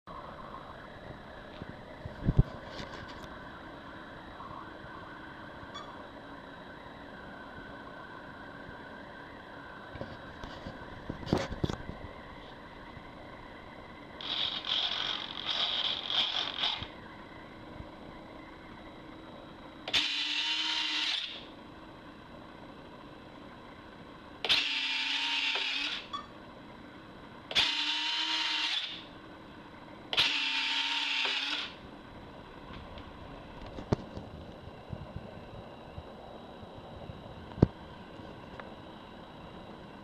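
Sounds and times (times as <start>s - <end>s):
uneven mechanical whirring: 0.1s - 40.0s
landing gear whirring: 14.2s - 17.1s.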